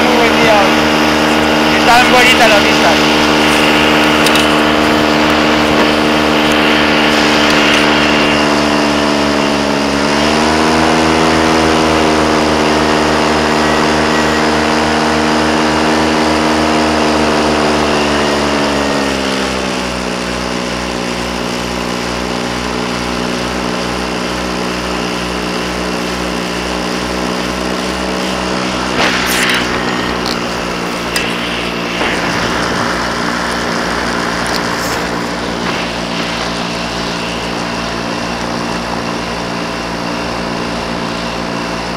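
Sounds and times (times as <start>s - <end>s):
light aircraft engine in flight: 0.0s - 41.9s
wind rushing: 3.0s - 9.5s, 28.0s - 38.3s
short rustling burst: 27.8s - 38.4s.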